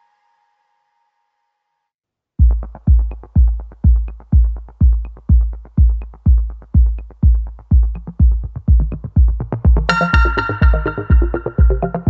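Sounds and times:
electronic music with kick drum: 2.4 - 12.0.

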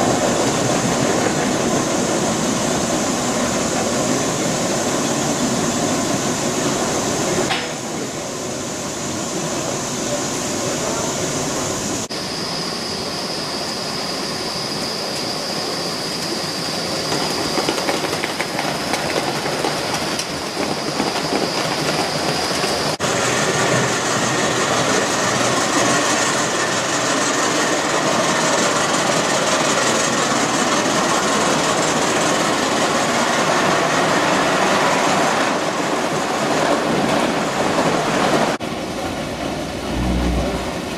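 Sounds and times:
model train wheels clattering on rails: 7.5 - 7.8, 17.1 - 23.0.

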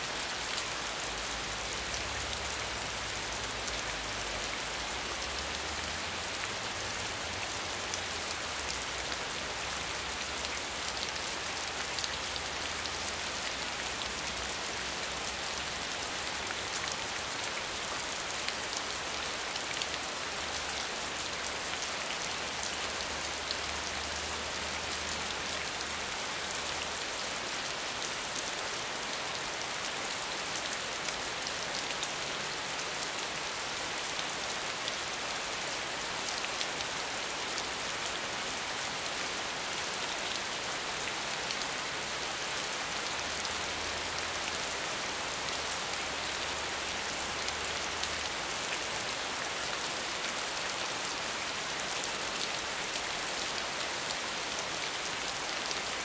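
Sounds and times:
rain pattering: 40.0 - 56.0.

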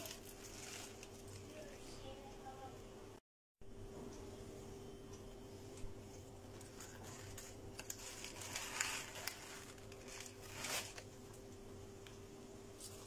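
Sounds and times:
plastic bag rustling and crinkling: 0.0 - 2.0, 6.4 - 11.2
faint steady hum: 0.0 - 13.0.

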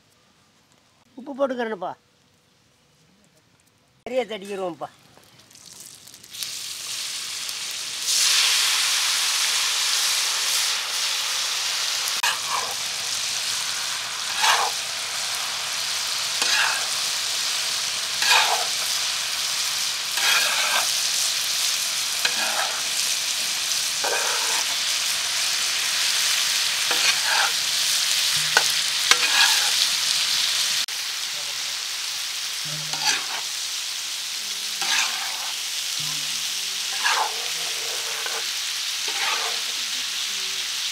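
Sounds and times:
meat sizzling on hot pan: 4.4 - 40.9
spatula scraping pan: 12.2 - 12.8, 14.3 - 14.8, 16.4 - 17.0, 18.2 - 18.9, 20.1 - 21.0, 22.2 - 23.0, 24.0 - 24.8, 26.9 - 27.6, 28.3 - 29.8, 32.8 - 33.5, 34.8 - 35.6, 36.2 - 38.5, 39.1 - 39.8.

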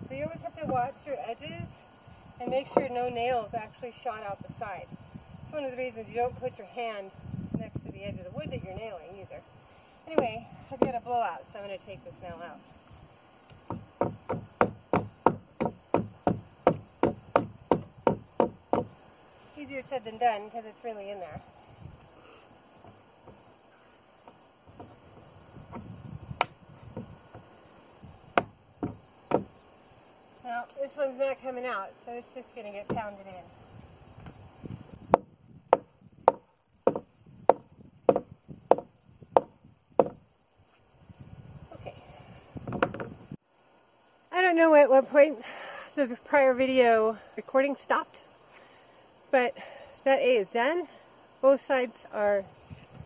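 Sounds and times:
hammer striking nail into wood: 13.7 - 18.9, 35.1 - 40.2.

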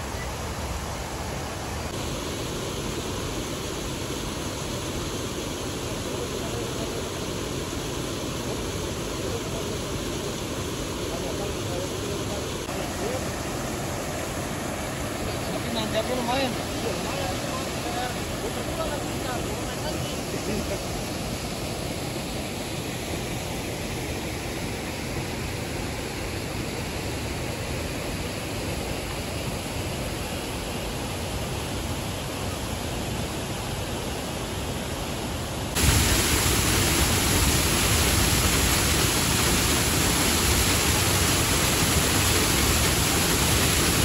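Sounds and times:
flowing river water: 0.0 - 44.0.

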